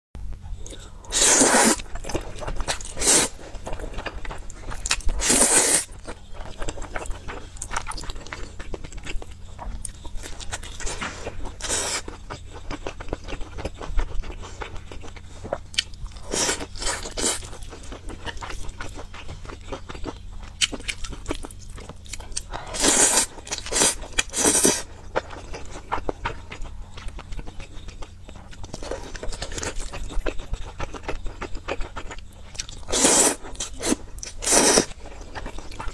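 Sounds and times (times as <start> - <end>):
wet chewing and crunching: 0.4 - 35.9
slurping noodles: 1.1 - 1.9, 2.9 - 3.4, 5.2 - 6.0, 22.7 - 24.8, 32.9 - 35.0.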